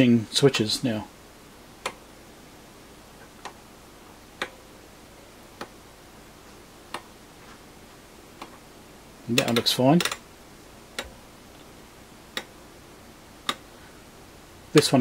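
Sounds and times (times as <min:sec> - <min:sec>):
rotary switch clicking: 0:01.8 - 0:02.0, 0:04.4 - 0:04.6, 0:05.6 - 0:05.8, 0:09.3 - 0:10.2, 0:12.3 - 0:12.5, 0:13.4 - 0:13.6.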